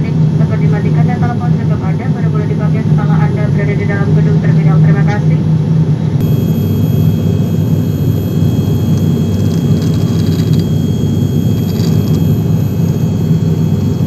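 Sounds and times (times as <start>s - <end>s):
propeller engine drone in cabin: 0.0s - 14.0s
faint high whine: 6.2s - 14.0s.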